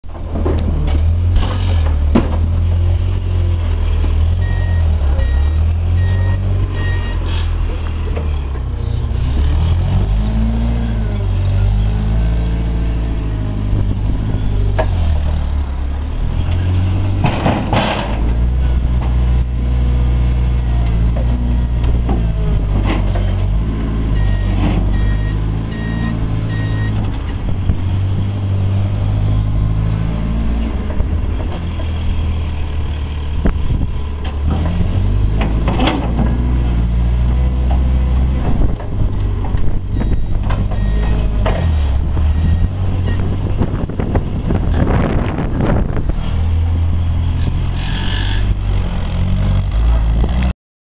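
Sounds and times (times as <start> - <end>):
forklift engine revving: 0.6 - 50.5
reversing alarm beeps: 4.4 - 7.2, 24.2 - 27.0, 40.0 - 41.2
metal clanks and bangs: 16.5 - 19.2.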